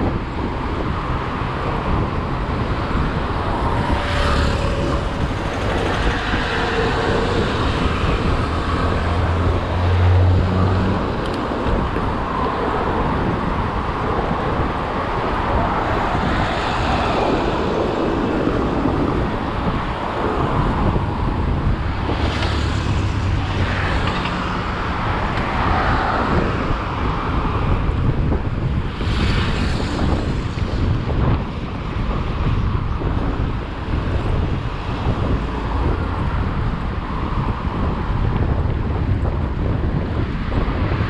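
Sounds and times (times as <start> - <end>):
vehicle road noise: 0.0 - 41.0
vehicle whooshing past: 3.5 - 12.5.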